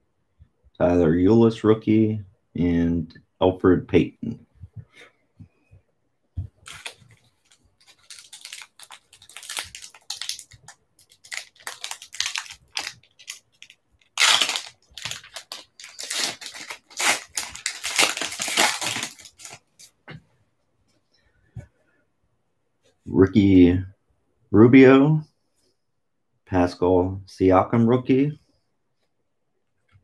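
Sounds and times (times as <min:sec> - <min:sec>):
plastic wrapper crinkling and tearing: 0:06.5 - 0:20.0.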